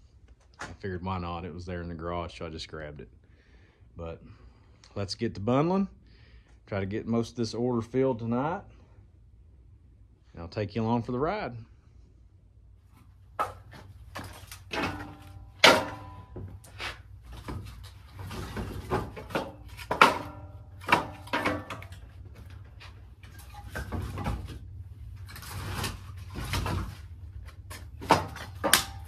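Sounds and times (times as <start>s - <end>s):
wood shuffling: 12.9s - 29.0s
firewood knocking and clacking: 13.4s - 24.6s, 27.6s - 29.0s.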